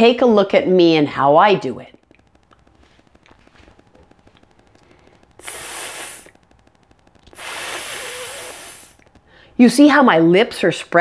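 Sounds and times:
woman hissing s sound: 5.4s - 6.4s, 7.3s - 9.0s.

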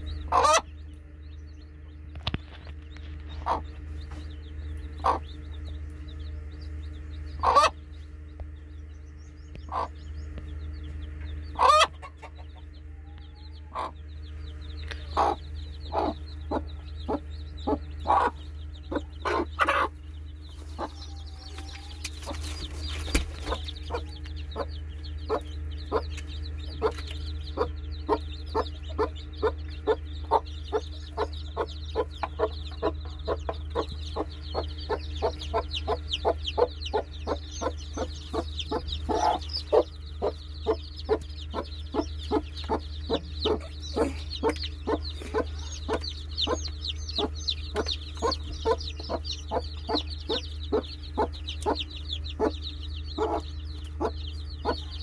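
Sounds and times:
chicks peeping: 0.0s - 55.0s
hen clucking: 0.0s - 55.0s.

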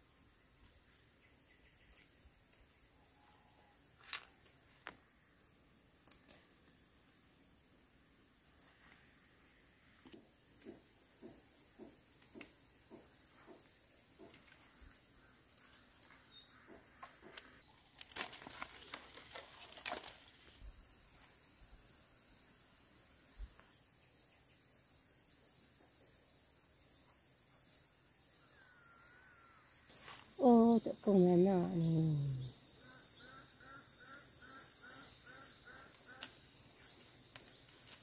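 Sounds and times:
high insect trill: 0.0s - 38.0s
rustling: 17.4s - 20.7s.

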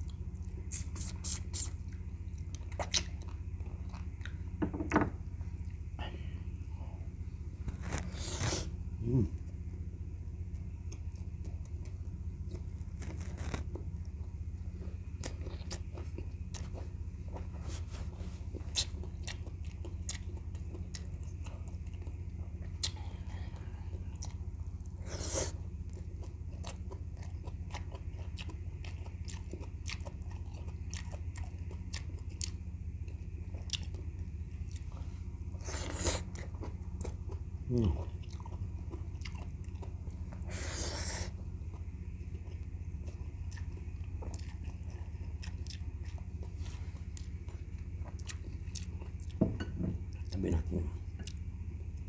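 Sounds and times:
wet chewing and mouth clicks: 0.0s - 4.4s, 18.6s - 23.1s, 25.9s - 34.9s, 35.9s - 40.4s, 41.3s - 49.4s, 51.1s - 52.0s
low hum: 0.0s - 52.0s.

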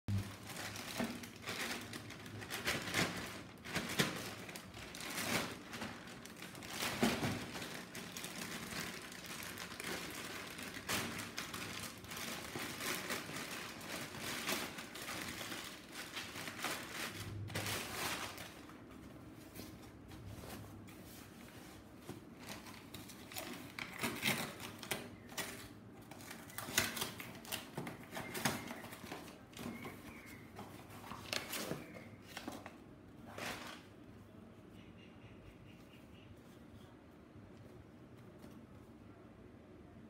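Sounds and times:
plastic bag crinkling: 0.1s - 19.4s, 21.8s - 34.0s.

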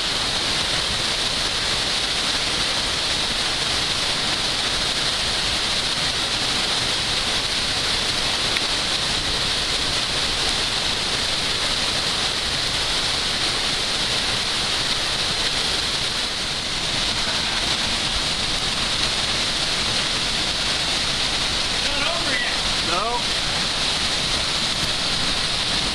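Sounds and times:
waterfall rushing: 0.0s - 25.9s.

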